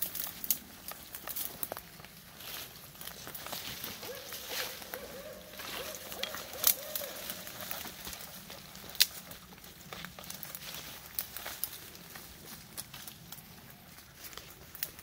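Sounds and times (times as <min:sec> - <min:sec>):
twig snaps: 0:00.0 - 0:01.9, 0:05.8 - 0:07.8
footsteps on forest floor: 0:00.0 - 0:15.0
rustling leaves and branches: 0:00.0 - 0:15.0.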